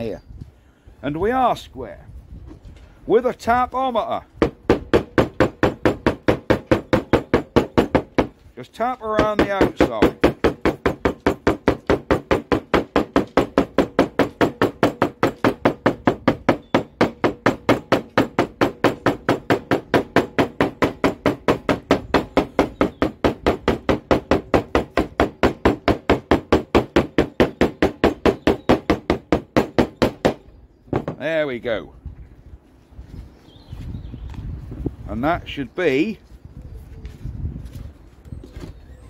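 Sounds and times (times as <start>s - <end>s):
hammer tapping on metal: 9.1s - 31.2s.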